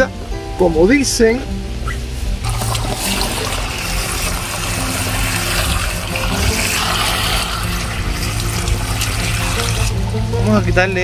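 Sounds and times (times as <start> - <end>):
hose water splashing into tank: 2.4 - 10.1.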